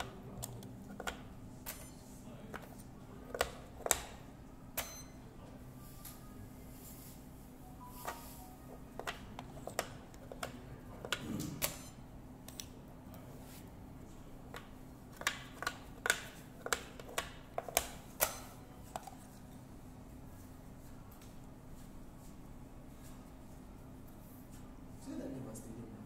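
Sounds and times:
game discs clicking on board: 0:00.0 - 0:01.8, 0:08.9 - 0:11.8, 0:14.5 - 0:18.4
game clock button presses: 0:04.8 - 0:05.1.

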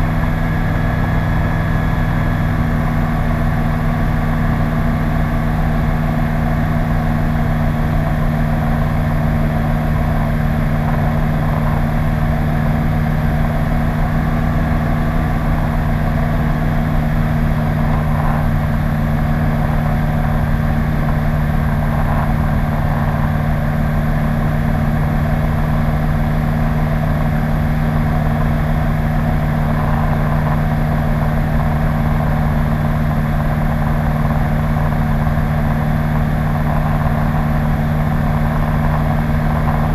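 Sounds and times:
light aircraft engine droning: 0:00.0 - 0:39.9.

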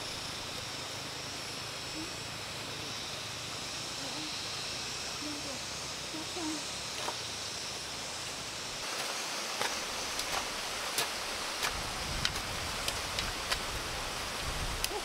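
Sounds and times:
outdoor hiss: 0:00.0 - 0:15.0
hoes chopping soil: 0:08.8 - 0:13.8.

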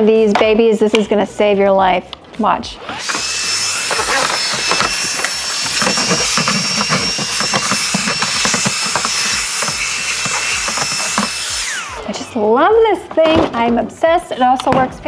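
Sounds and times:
handheld vacuum whining: 0:02.8 - 0:12.8.

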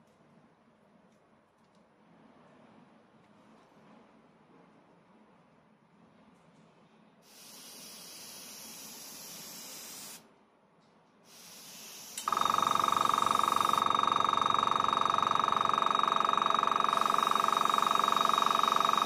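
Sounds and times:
airbrush air hissing: 0:07.3 - 0:10.2, 0:11.3 - 0:13.8, 0:17.0 - 0:19.0
compressor motor buzzing: 0:11.4 - 0:19.0.

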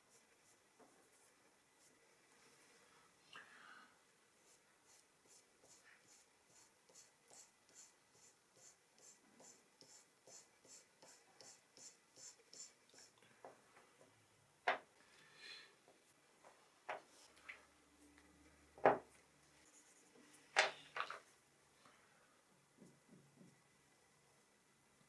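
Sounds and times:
pastel scratching on paper: 0:04.4 - 0:13.1.

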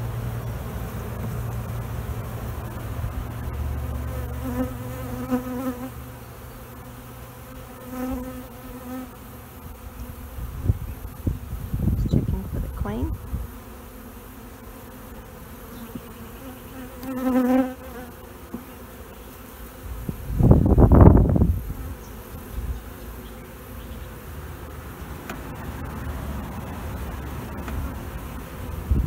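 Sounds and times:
bees buzzing around a hive: 0:00.0 - 0:29.0
single bee buzzing close: 0:00.0 - 0:29.0.

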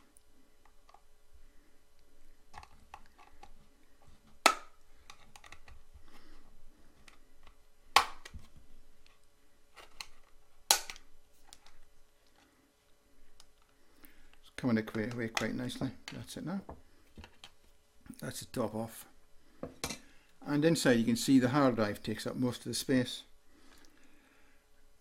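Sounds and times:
plastic case clicks and scraping: 0:05.0 - 0:05.8.

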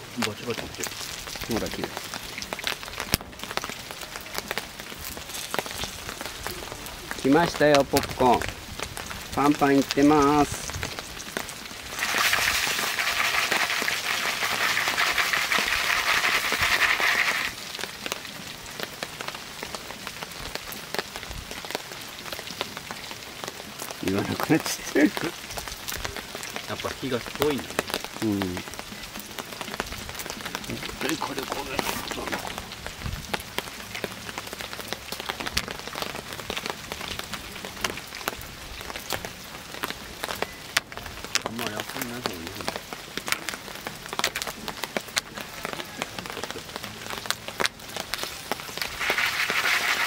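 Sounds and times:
crackles: 0:00.0 - 0:50.0
sizzling: 0:00.0 - 0:50.0
popcorn popping: 0:11.9 - 0:17.6, 0:48.8 - 0:50.0.

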